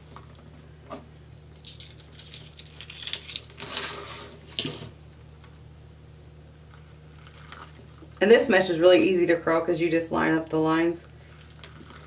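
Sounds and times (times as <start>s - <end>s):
plastic mesh rustling and crinkling: 6.7s - 8.2s, 11.2s - 12.0s.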